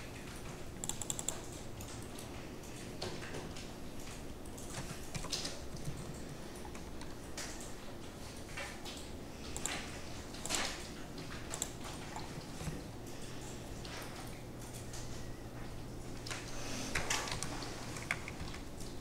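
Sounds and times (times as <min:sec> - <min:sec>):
steady low hum: 0:00.0 - 0:19.0
computer mouse clicks: 0:00.8 - 0:02.0, 0:11.5 - 0:12.7, 0:17.0 - 0:18.6
keyboard keys clicking: 0:00.8 - 0:07.8.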